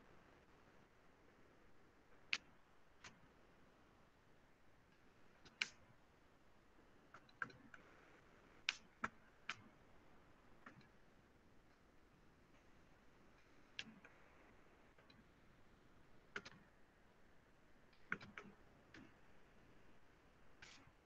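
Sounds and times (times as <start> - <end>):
light clicks of input device: 2.1 - 3.3, 4.9 - 6.0, 7.1 - 7.9, 8.6 - 11.9, 12.5 - 15.4, 16.2 - 16.8, 17.9 - 21.0.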